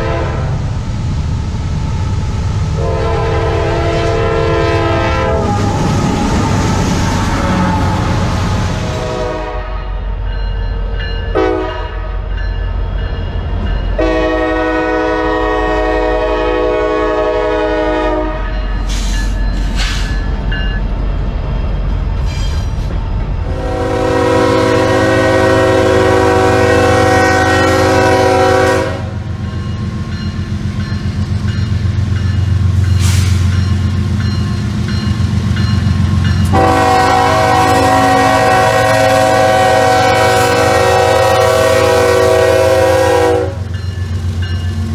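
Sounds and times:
locomotive air horn blasts: 0.0 - 0.6, 2.8 - 5.8, 8.8 - 10.0, 11.4 - 12.1, 14.0 - 18.6, 23.5 - 29.2, 36.5 - 43.7.

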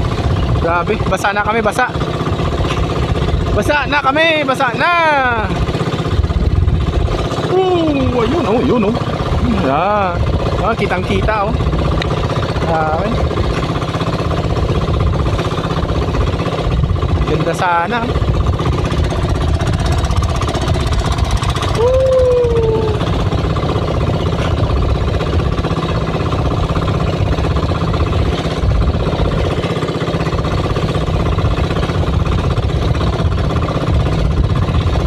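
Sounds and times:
boat engine knocking: 0.0 - 35.0.

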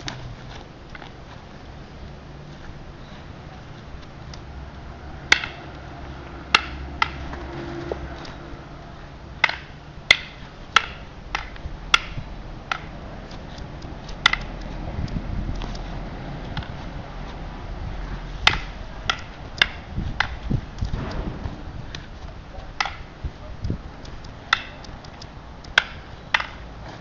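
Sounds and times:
sticks clacking together: 5.3 - 5.8, 6.5 - 8.4, 9.4 - 14.7, 18.4 - 21.2, 22.7 - 26.7.

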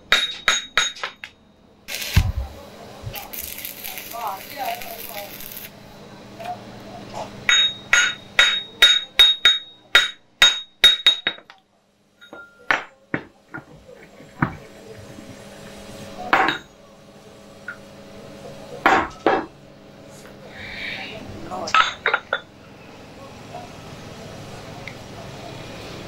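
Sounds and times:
hammer striking steel: 0.0 - 1.4, 7.5 - 11.6, 16.3 - 16.7.

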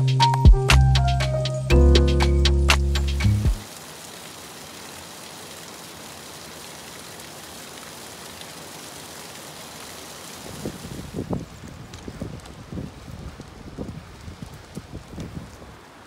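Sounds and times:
waterfall and stream rushing: 2.0 - 11.5.

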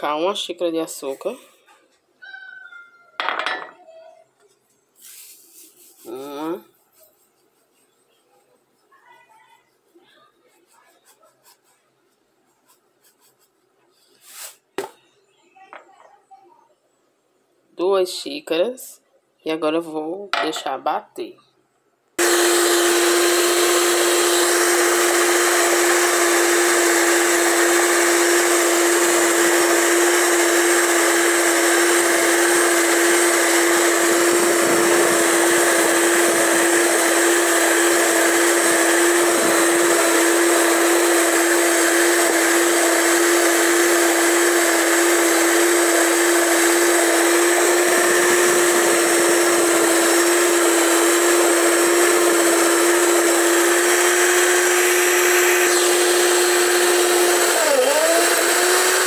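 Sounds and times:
electric mixer whine: 22.2 - 59.0.

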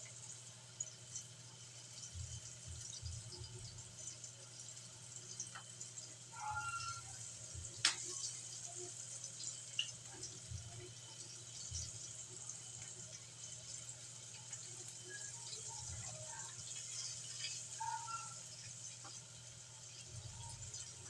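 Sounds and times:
high squeak: 6.3 - 7.2.

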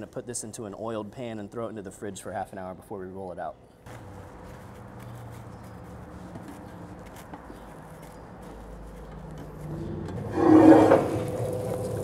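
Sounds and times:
wooden spoon scraping a skillet: 9.4 - 11.6.

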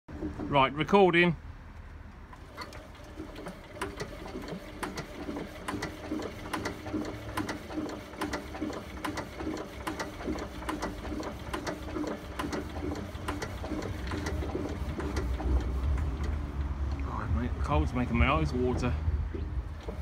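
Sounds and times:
diesel engine knocking: 3.2 - 16.6.

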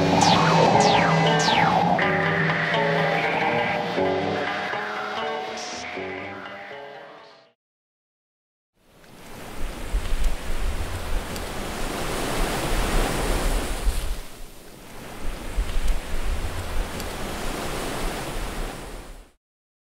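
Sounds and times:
ambient electronic music: 0.0 - 7.6.

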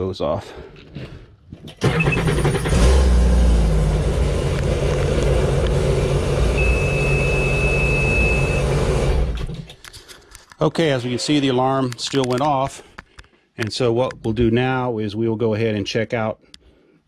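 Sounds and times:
watercraft engine idling: 5.1 - 9.4
high warning beep: 6.6 - 8.8.

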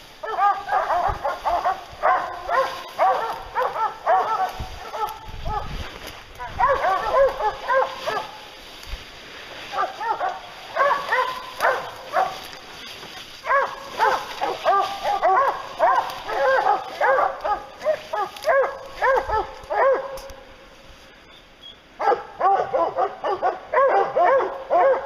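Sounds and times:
hounds baying and barking: 0.2 - 8.6, 9.5 - 20.5, 22.0 - 25.0.

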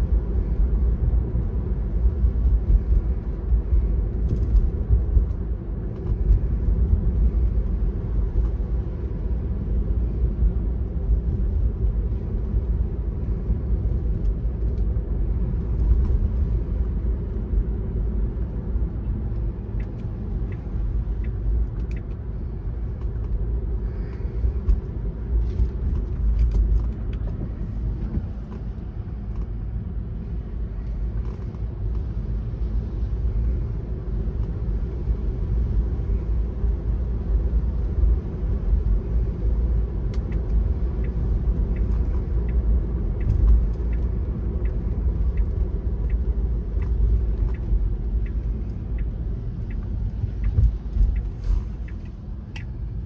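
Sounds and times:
car driving on wet streets: 0.0 - 53.0
faint ticks: 40.1 - 52.8.

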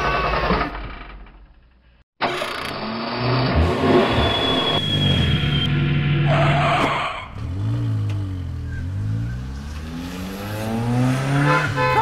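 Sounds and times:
car engine revving: 2.4 - 12.0.

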